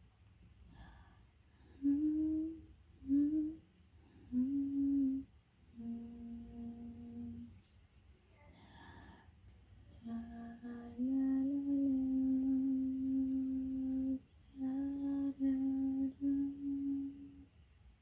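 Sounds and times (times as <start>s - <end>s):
person humming: 1.6s - 7.5s, 9.9s - 17.5s.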